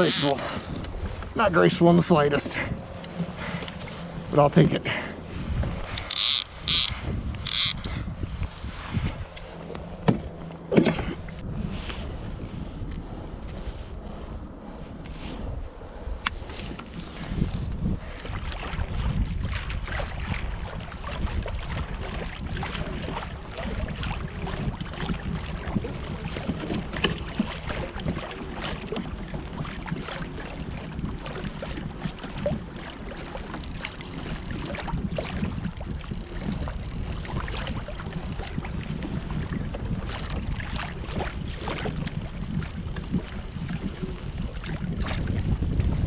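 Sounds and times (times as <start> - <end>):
water lapping against hull: 0.0 - 46.0
wind rumbling on microphone: 0.0 - 46.0
small ticks and splashes: 18.1 - 38.8, 39.4 - 45.2.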